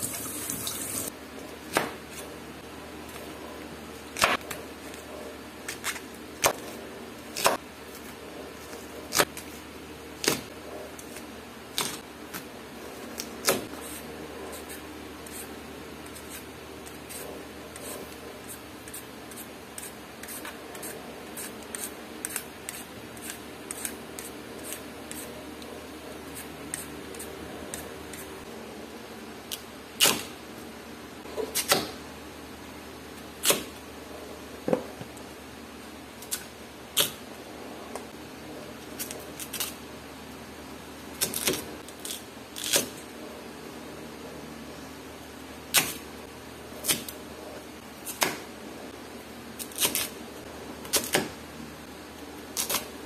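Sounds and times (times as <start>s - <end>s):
peeler scraping sweet potato skin: 13.2s - 25.4s.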